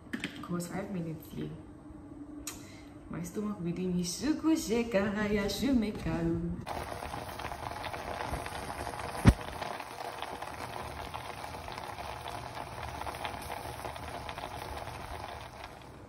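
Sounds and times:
pot bubbling hiss: 6.7 - 16.0.

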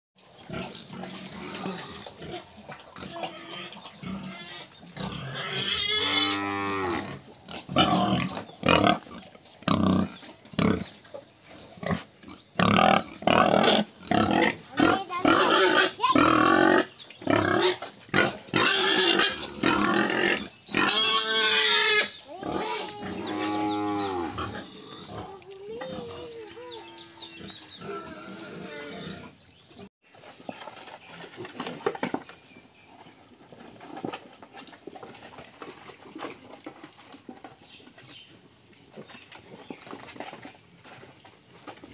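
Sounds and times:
pigs squealing and grunting: 0.4 - 29.8.

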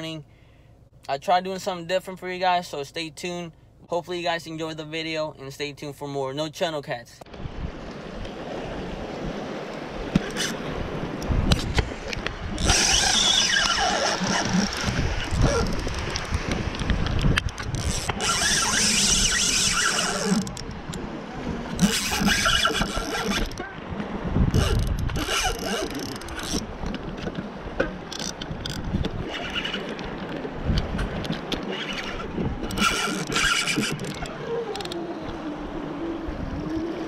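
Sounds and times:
wind rumbling on microphone: 7.3 - 37.0
fishing reel spinning: 12.6 - 16.2, 17.5 - 20.6, 21.8 - 23.6, 24.6 - 26.7, 31.7 - 35.2.

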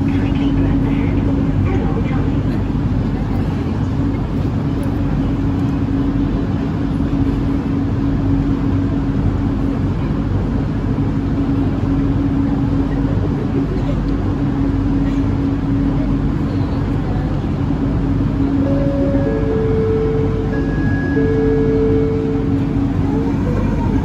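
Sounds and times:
ventilation droning hum: 0.0 - 24.0.

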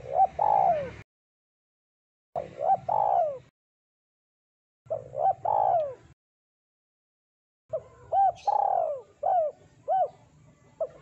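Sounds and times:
dove cooing: 0.0 - 1.0, 2.4 - 3.5, 4.9 - 6.2, 7.7 - 11.0.

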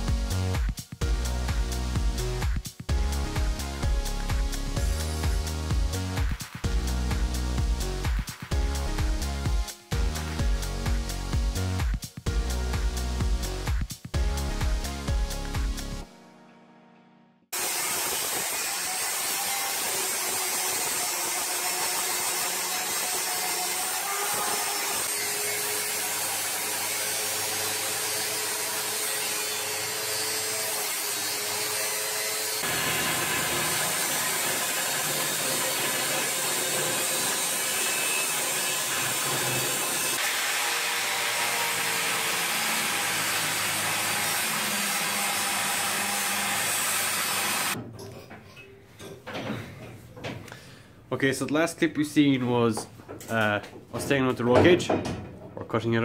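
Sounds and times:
angle grinder cutting steel: 17.5 - 47.8.

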